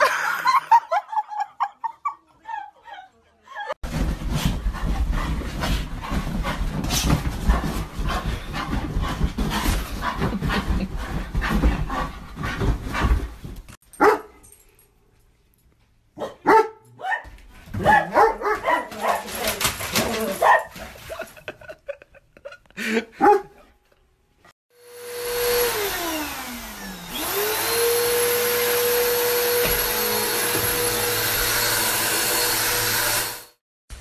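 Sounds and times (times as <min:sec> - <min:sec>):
bedding rustling: 0:03.8 - 0:13.8
dog barking and yelping: 0:14.0 - 0:14.4, 0:16.2 - 0:20.8, 0:23.2 - 0:23.7.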